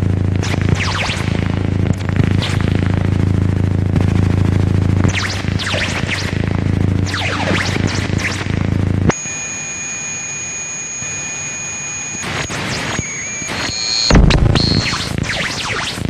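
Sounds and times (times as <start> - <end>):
high-pitched electronic whine: 0.1 - 16.0
burst of noise: 13.5 - 15.1
loud low boom: 14.1 - 14.6.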